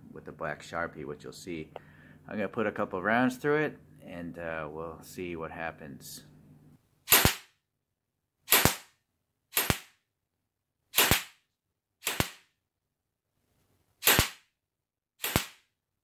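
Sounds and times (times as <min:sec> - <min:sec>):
airsoft rifle single shots: 0:07.1 - 0:07.5, 0:08.5 - 0:08.9, 0:09.6 - 0:10.0, 0:11.0 - 0:11.4, 0:12.0 - 0:12.5, 0:14.0 - 0:14.5, 0:15.2 - 0:15.7.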